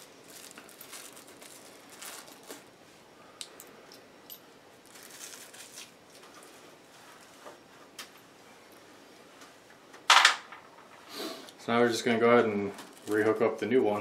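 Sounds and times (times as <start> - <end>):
plastic bag crinkling: 0.0 - 2.7, 4.8 - 6.5, 12.8 - 13.8.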